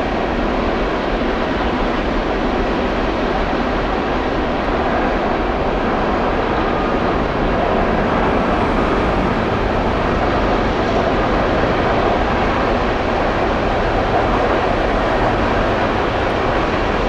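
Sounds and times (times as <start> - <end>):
freight train wheels on rails: 0.0 - 17.0.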